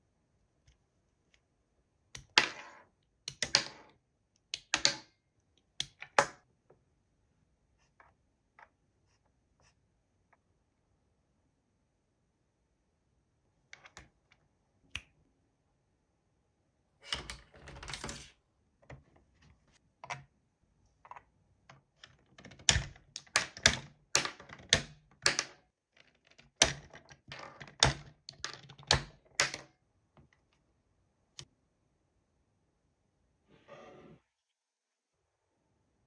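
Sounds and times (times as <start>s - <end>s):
plastic toy parts clicking: 22.0s - 29.7s.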